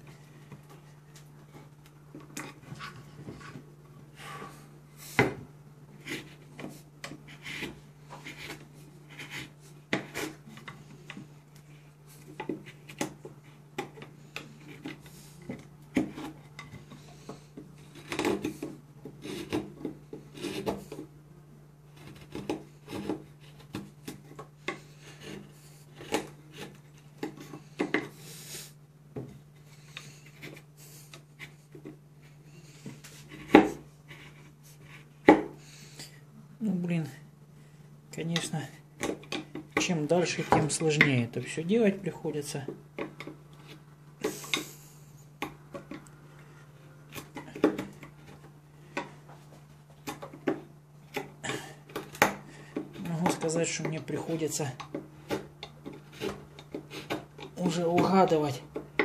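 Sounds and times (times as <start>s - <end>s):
knife scraping through wood: 6.0s - 11.1s, 14.2s - 21.0s, 21.9s - 28.7s, 55.2s - 58.4s.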